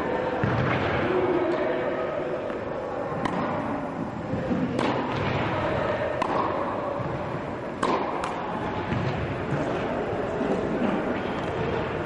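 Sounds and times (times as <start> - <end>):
tennis ball struck by rackets: 3.2 - 3.6, 4.5 - 5.5, 6.1 - 7.2, 7.8 - 9.8
ball bouncing: 7.8 - 9.8.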